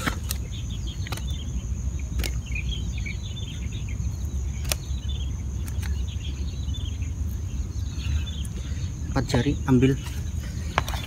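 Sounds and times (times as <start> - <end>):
birds chirping: 0.0 - 11.0
insects droning: 0.0 - 11.0
sharp clicks: 2.2 - 2.4, 4.6 - 5.0.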